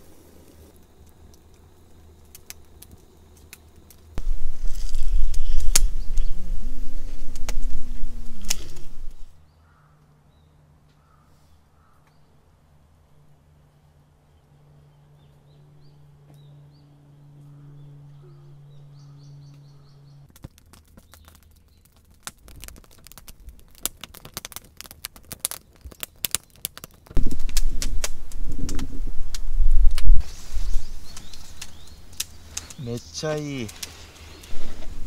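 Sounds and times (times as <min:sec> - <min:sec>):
sharp clicks and crackles: 0:00.5 - 0:06.4, 0:07.1 - 0:09.3, 0:20.3 - 0:34.9
faint birdsong: 0:09.2 - 0:20.3, 0:30.2 - 0:34.9
low steady hum: 0:11.6 - 0:20.3.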